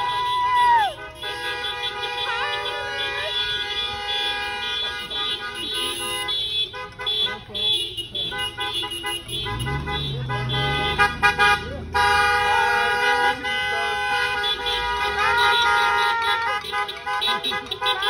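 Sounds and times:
car horns honking: 0:00.0 - 0:18.0
car engine rumbling by: 0:08.1 - 0:15.2.

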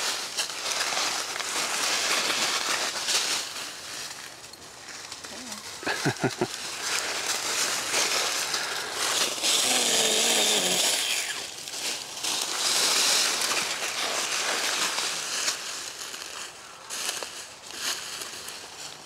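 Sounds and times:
battery pruning saw cutting: 0:09.4 - 0:11.5.

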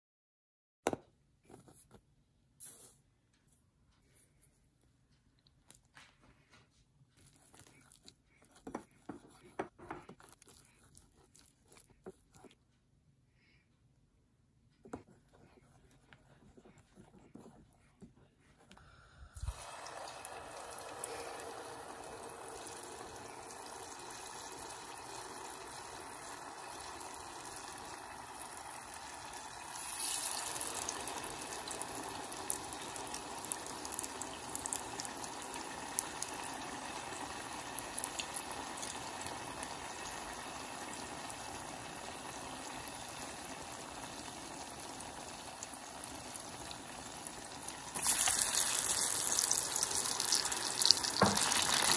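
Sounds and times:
food deep-frying in oil: 0:19.4 - 0:51.9.

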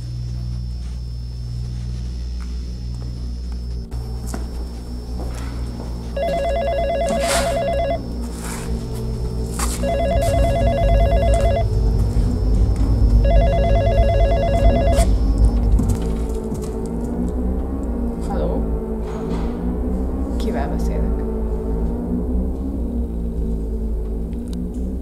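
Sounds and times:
low droning background music: 0:00.0 - 0:25.0
desk telephone ringing: 0:06.0 - 0:08.6, 0:09.8 - 0:11.7, 0:13.2 - 0:15.6.

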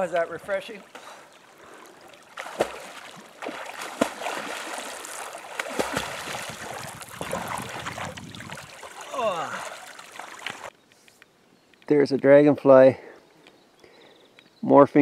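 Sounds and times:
sharp slaps of water: 0:02.2 - 0:09.1, 0:09.7 - 0:10.7
swimmer splashing in water: 0:02.4 - 0:10.7.

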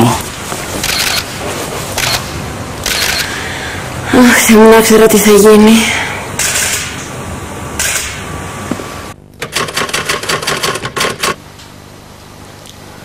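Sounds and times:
sharp mechanical clicks: 0:00.8 - 0:01.3, 0:02.0 - 0:02.2, 0:02.8 - 0:03.3, 0:09.4 - 0:11.4.

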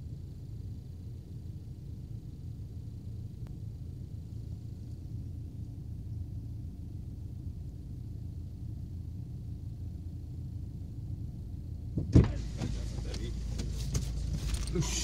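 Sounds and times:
car cabin rumble: 0:00.0 - 0:15.0.

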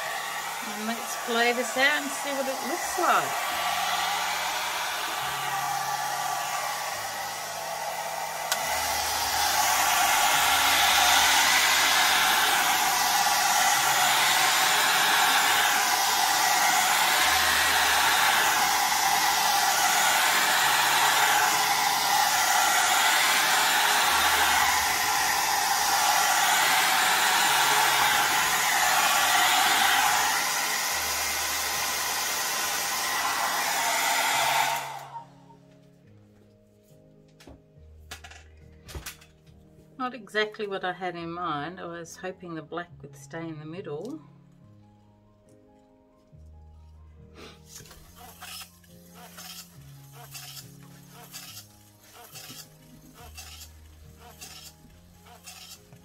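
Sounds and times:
mini hair dryer hissing: 0:00.0 - 0:35.3, 0:48.1 - 0:56.0.

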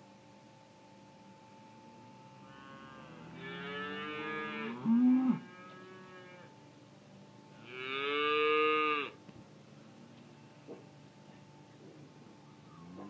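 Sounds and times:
cow mooing: 0:02.4 - 0:06.5, 0:07.6 - 0:09.2, 0:12.7 - 0:13.0.

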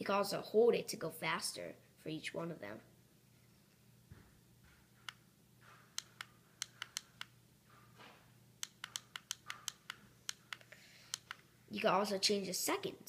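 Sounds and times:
plastic buttons clicking: 0:06.0 - 0:07.3, 0:08.6 - 0:11.4.

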